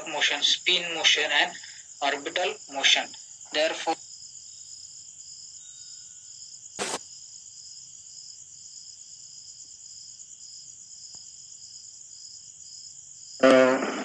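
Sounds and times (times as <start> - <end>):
pulsing insect call: 0.0 - 7.3
insects trilling: 0.0 - 14.0
sharp click: 6.8 - 7.0.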